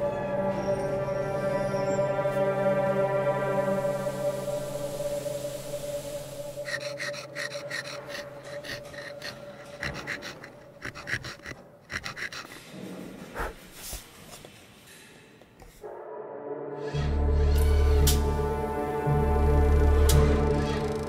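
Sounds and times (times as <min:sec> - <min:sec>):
musical drone: 0:00.0 - 0:10.6, 0:15.8 - 0:21.0
tool scraping wood: 0:06.6 - 0:14.5.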